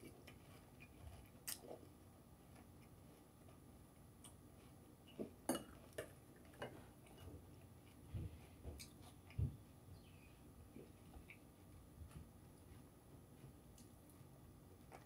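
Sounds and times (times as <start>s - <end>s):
crunchy chewing: 0.0s - 3.6s.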